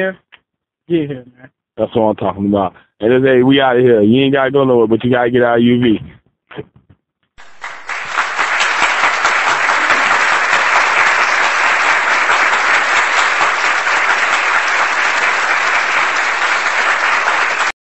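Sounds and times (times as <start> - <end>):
crowd applause: 7.4 - 17.8.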